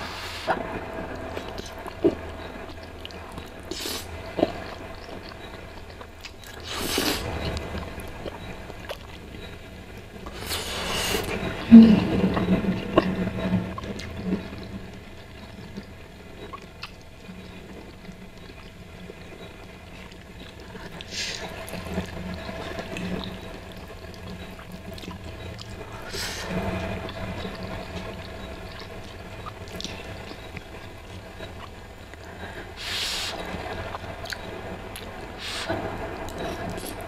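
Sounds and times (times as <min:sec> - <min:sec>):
wet chewing: 0:00.4 - 0:37.0
slurping noodles: 0:06.6 - 0:07.7, 0:10.3 - 0:12.3.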